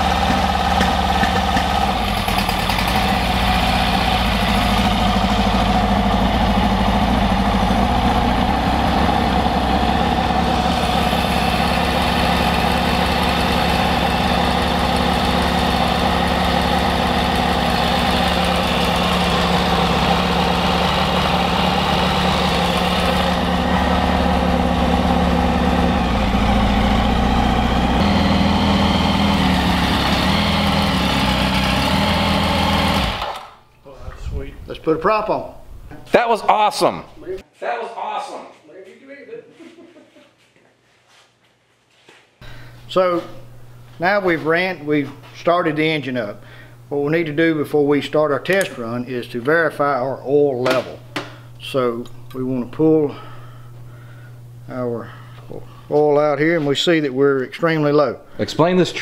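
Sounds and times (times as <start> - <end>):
aircraft engine running: 0.0 - 33.5.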